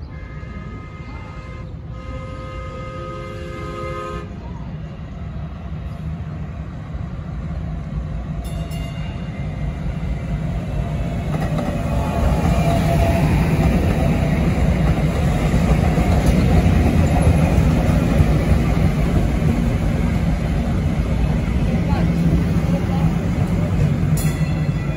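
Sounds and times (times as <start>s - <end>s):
light-rail train wheels rumbling: 0.0s - 24.9s.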